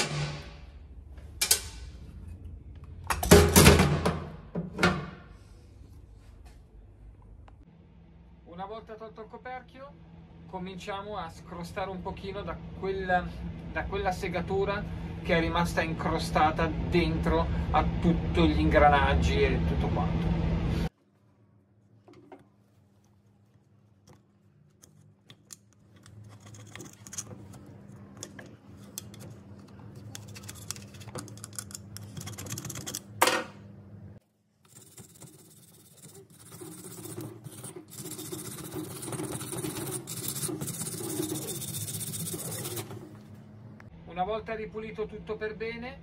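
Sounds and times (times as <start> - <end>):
screwdriver scraping sawdust: 34.6 - 43.0.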